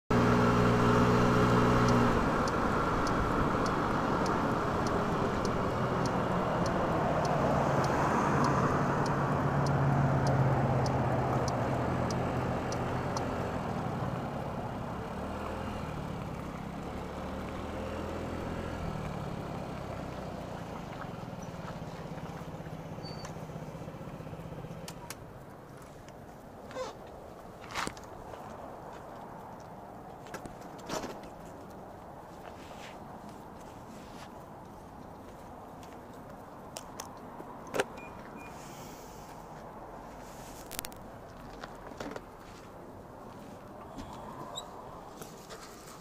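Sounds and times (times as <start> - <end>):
motorcycle engine running: 0.1 - 7.5
road and wind noise: 0.1 - 46.0
light regular ticking: 0.2 - 20.7.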